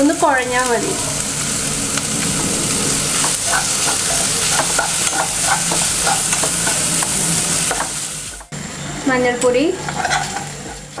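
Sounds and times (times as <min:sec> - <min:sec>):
vegetables sizzling in hot oil: 0:00.0 - 0:11.0
metal spoon scraping a pan: 0:02.9 - 0:08.0, 0:09.7 - 0:11.0.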